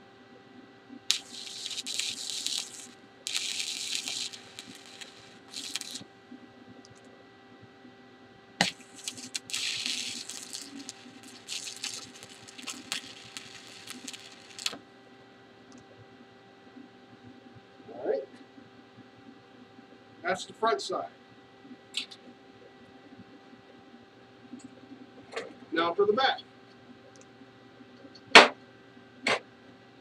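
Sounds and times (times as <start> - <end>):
welding arc crackling: 1.1 - 6.1, 8.6 - 14.8.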